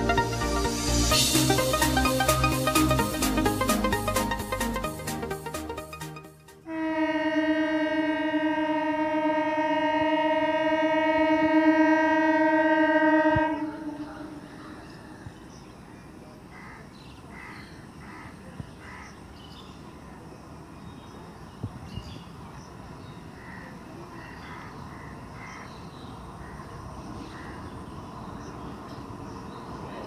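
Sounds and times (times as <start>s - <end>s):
train horn blast: 6.6s - 15.0s
outdoor background noise: 6.6s - 30.0s.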